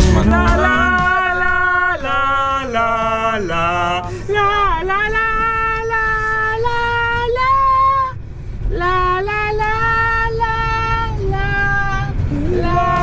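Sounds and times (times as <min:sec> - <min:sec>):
high voice singing held notes: 0:00.0 - 0:06.3
steady low rumble: 0:00.0 - 0:13.0.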